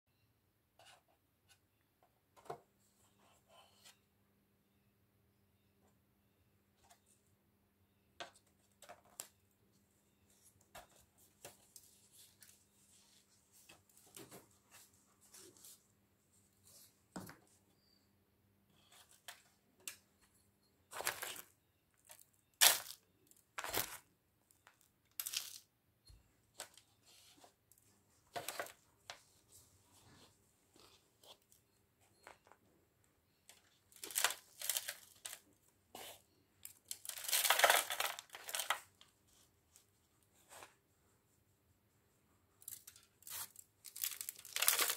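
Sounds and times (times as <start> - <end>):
plant pots and foil crinkling: 21.0 - 25.6, 33.5 - 35.5, 36.6 - 39.0, 42.6 - 44.9.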